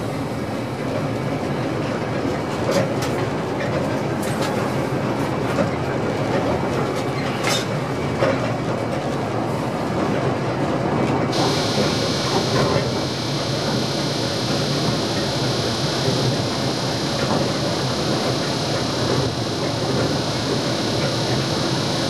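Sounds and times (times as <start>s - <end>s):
high hiss: 11.4s - 22.0s.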